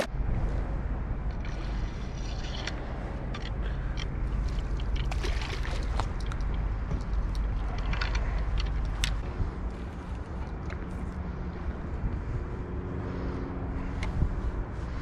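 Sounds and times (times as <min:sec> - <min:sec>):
low rumble: 0:00.0 - 0:15.0
water sloshing and lapping: 0:01.3 - 0:11.4.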